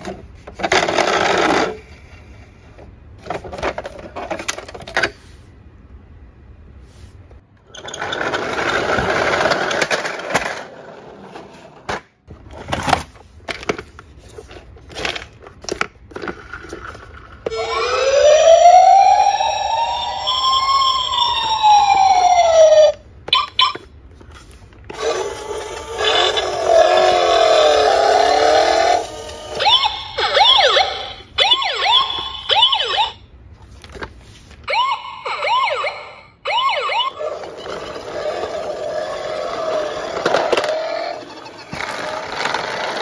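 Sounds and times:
plastic toys rattling in a box: 0.0s - 1.9s, 12.5s - 17.5s, 37.2s - 43.0s
wavering electronic sound effect: 17.5s - 20.8s
toy police siren wailing: 17.5s - 23.9s, 24.9s - 33.2s, 34.7s - 43.0s.

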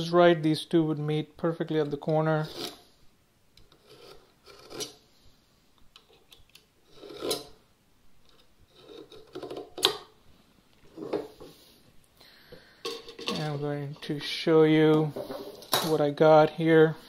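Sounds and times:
marking knife scratching wood: 2.4s - 2.8s, 3.6s - 5.0s, 6.9s - 7.6s, 8.7s - 9.8s.

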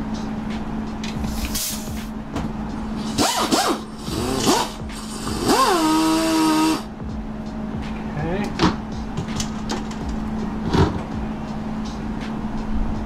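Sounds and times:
steady low hum: 0.0s - 13.0s
drill whining: 3.1s - 6.9s.

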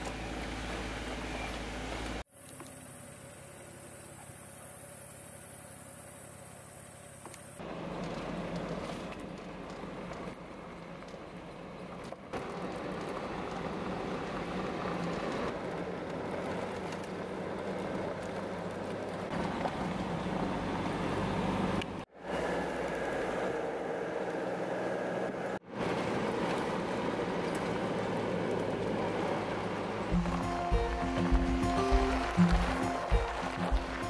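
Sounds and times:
car engine hum in cab: 0.0s - 4.6s, 7.0s - 34.0s
tyre rumble on gravel: 30.1s - 34.0s.

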